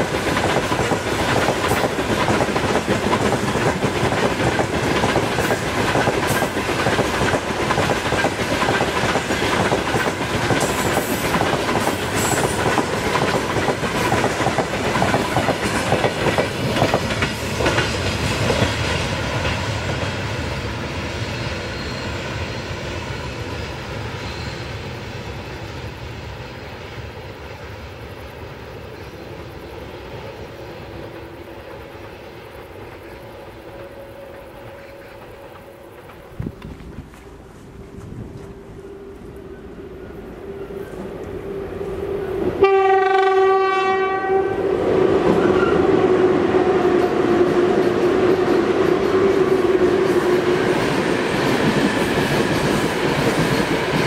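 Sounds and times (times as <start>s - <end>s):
steel wheels clattering over rail joints: 0.0s - 20.4s
freight train rolling past: 0.0s - 54.0s.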